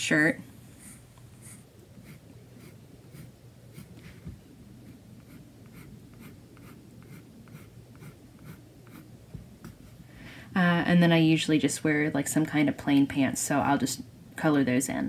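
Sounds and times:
pencil scratching on paper: 0:00.8 - 0:04.2, 0:04.8 - 0:09.1.

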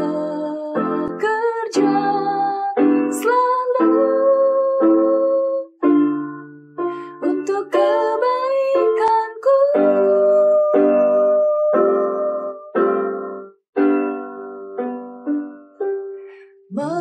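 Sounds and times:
keyboard chords: 0:00.0 - 0:17.0
person singing sliding melody: 0:16.7 - 0:17.0.

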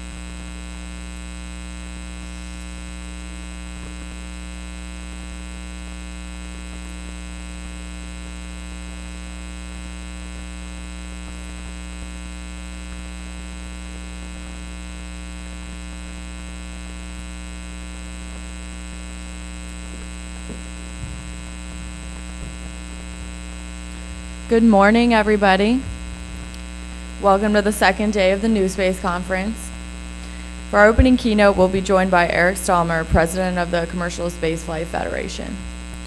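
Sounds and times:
electrical mains hum: 0:00.0 - 0:36.0
faint knocks: 0:19.9 - 0:23.4.

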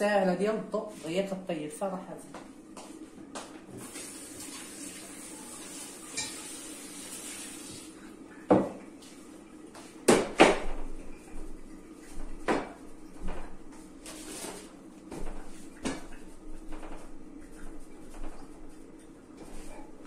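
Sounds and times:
knocks and clatters of kitchenware: 0:08.5 - 0:08.8, 0:10.1 - 0:11.0.

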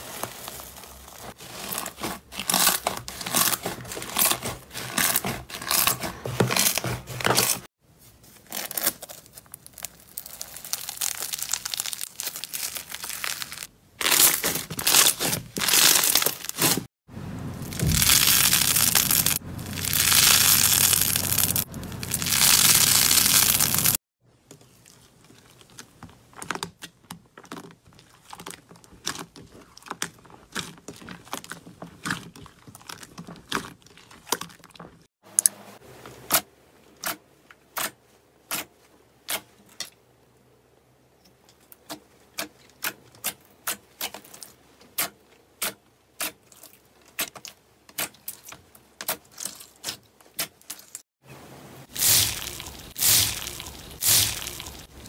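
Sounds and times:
crunchy slime crackling: 0:08.4 - 0:16.9, 0:17.6 - 0:24.0, 0:51.9 - 0:55.0.

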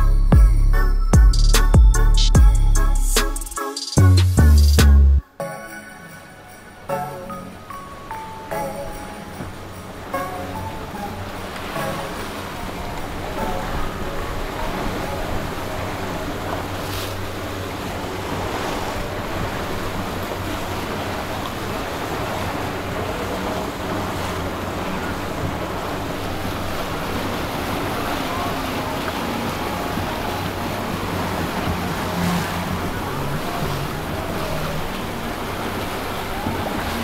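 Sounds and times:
open water washing: 0:06.4 - 0:37.0.

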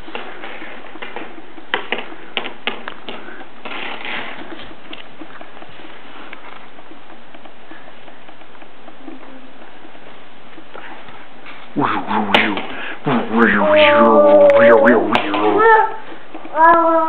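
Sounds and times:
small footsteps on tile: 0:00.0 - 0:12.8.

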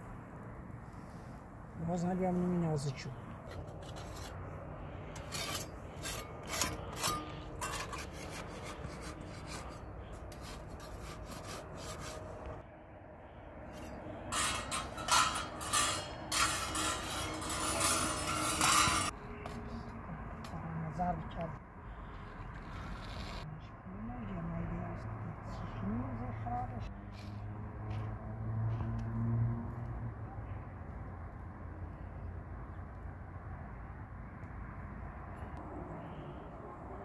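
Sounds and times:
flatbread scraping on metal griddle: 0:03.4 - 0:04.5, 0:05.1 - 0:12.6, 0:13.7 - 0:19.2, 0:22.0 - 0:23.5.

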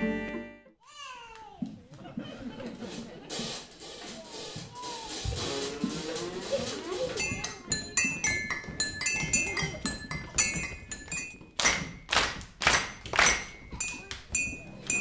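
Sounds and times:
ceramic mugs and spoons clinking: 0:07.2 - 0:12.1, 0:12.8 - 0:15.0.

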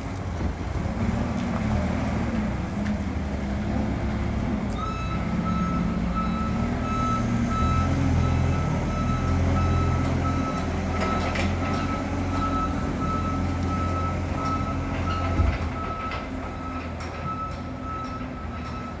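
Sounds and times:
diesel engine running: 0:00.0 - 0:19.0
engine clunk: 0:00.0 - 0:19.0
backup alarm beeping: 0:04.8 - 0:11.2.

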